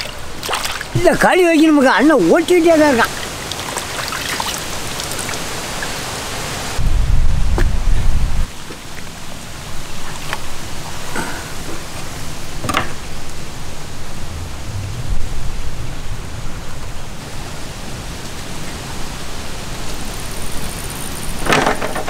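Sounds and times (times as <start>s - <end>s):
steady hiss: 0.0s - 22.0s
low rumble: 13.0s - 19.0s.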